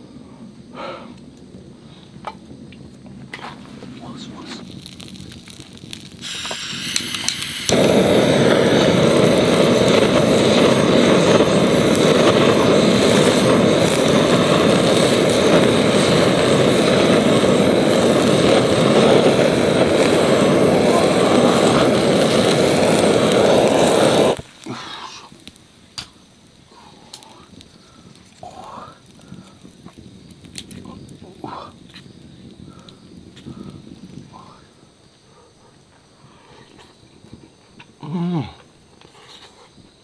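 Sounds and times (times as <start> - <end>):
gas torch flame rushing: 0.0 - 37.5
gas torch igniter clicks: 4.6 - 24.7.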